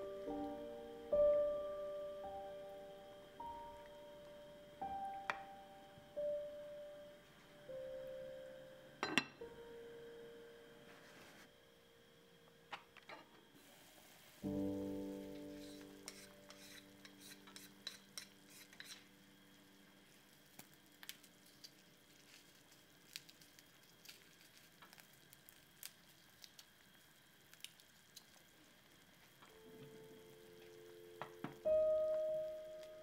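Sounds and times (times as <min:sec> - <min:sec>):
stew bubbling in a pot: 0:19.6 - 0:31.5.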